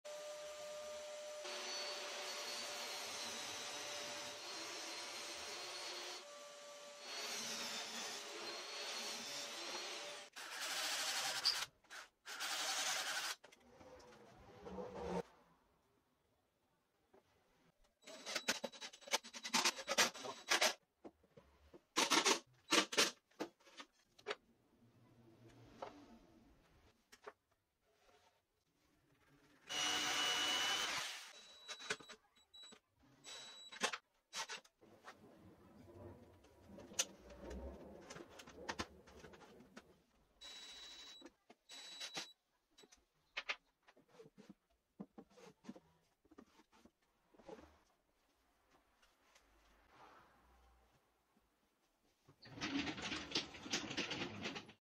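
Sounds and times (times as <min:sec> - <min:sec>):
screwdriver high whine: 0:29.7 - 0:32.0.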